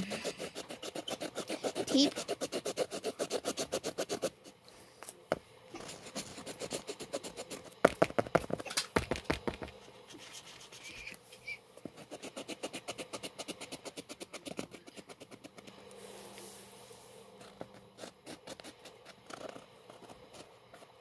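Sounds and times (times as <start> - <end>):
marker scribbling on canvas board: 0.0 - 4.6, 5.8 - 8.6, 9.8 - 11.2, 11.8 - 15.8, 17.4 - 21.0.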